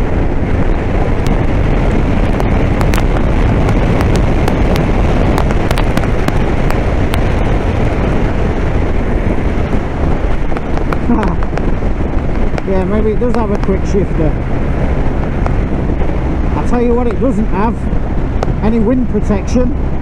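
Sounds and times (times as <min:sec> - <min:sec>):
motorcycle engine running: 0:00.0 - 0:20.0
wind rush: 0:00.0 - 0:20.0
sharp cracks and pops: 0:02.2 - 0:07.6, 0:10.2 - 0:13.8.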